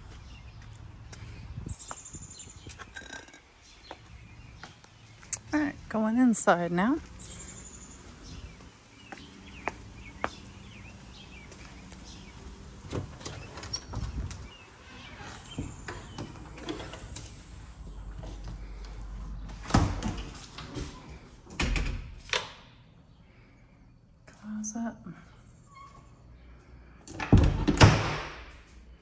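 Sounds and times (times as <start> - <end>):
door opening and shutting: 12.8 - 17.6, 19.6 - 22.7, 27.1 - 28.6.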